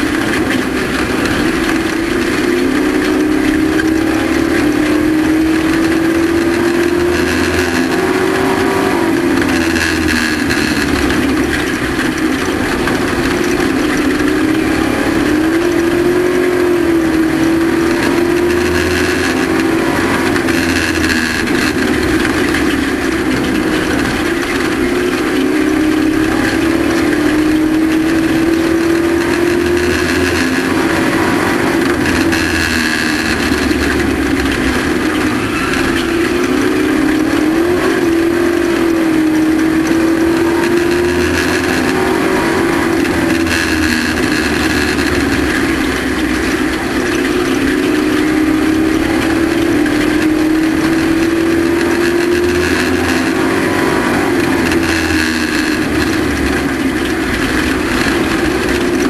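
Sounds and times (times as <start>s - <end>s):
race truck engine running hard: 0.0s - 59.0s.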